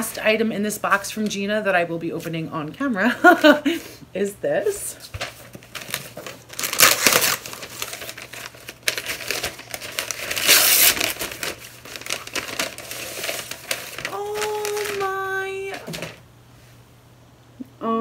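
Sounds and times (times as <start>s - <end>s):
paper tearing and crumpling: 5.2s - 16.2s.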